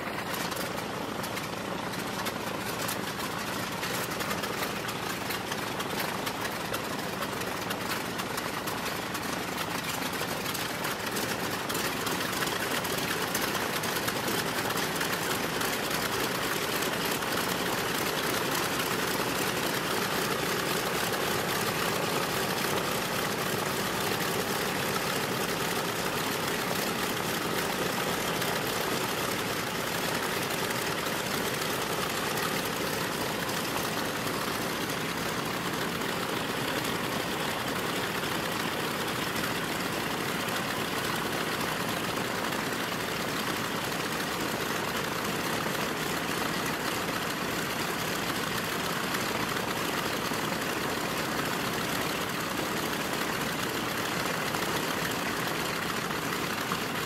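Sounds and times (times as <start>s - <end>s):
aircraft radial engines idling: 0.0s - 57.0s.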